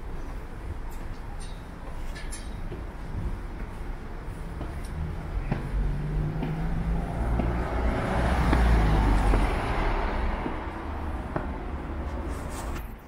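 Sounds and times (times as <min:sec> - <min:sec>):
faint footsteps on stairs: 0:00.2 - 0:12.9
vehicle passing by: 0:04.5 - 0:12.8.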